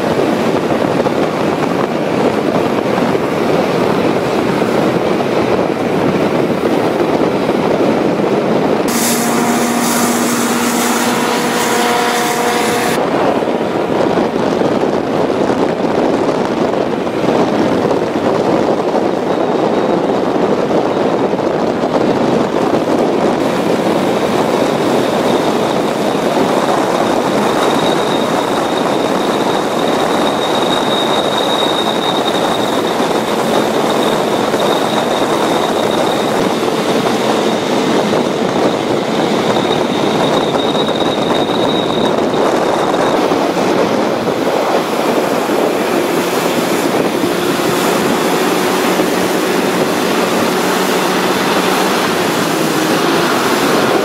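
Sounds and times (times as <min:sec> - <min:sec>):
hovercraft engine and fan roaring: 0:00.0 - 0:54.0
faint high whine: 0:08.9 - 0:13.0.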